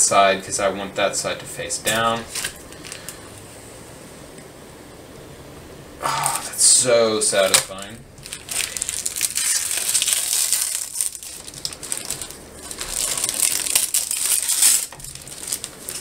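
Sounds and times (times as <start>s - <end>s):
plastic film crinkling as peeled: 1.9s - 3.2s, 7.4s - 16.0s.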